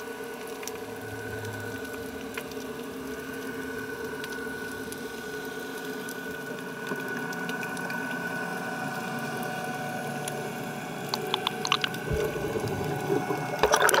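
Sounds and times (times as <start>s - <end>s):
electric motor humming underwater: 0.4s - 14.0s
rush of water: 11.1s - 14.0s
low thump: 12.1s - 13.6s.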